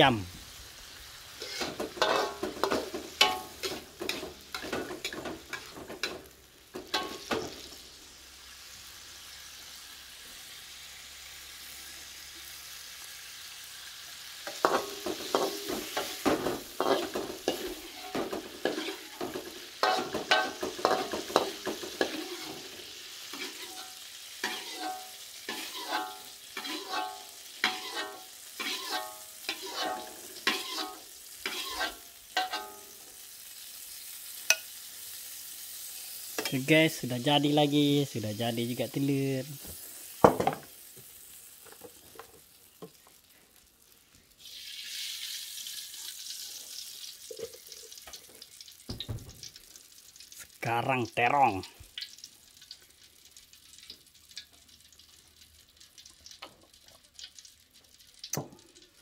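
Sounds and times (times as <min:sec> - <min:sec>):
oil sizzling: 0:00.0 - 0:59.0
spatula scraping a wok: 0:01.3 - 0:06.2, 0:06.8 - 0:07.7, 0:14.4 - 0:33.0.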